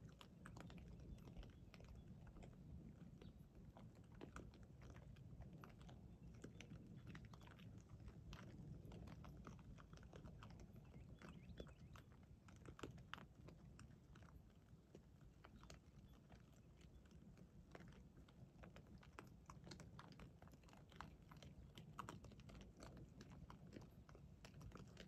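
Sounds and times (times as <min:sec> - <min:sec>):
hogs crunching and chewing: 0:00.0 - 0:25.0
low steady hum: 0:00.0 - 0:25.0.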